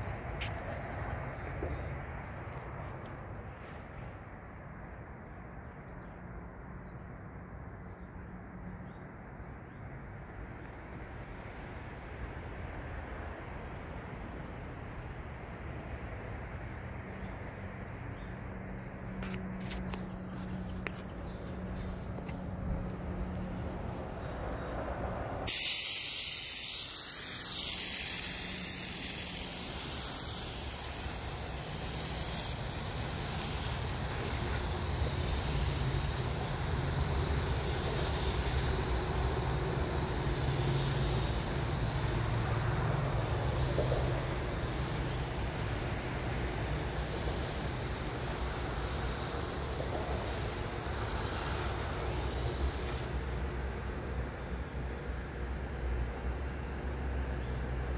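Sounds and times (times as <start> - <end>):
water hissing from spray nozzle: 25.5 - 53.5.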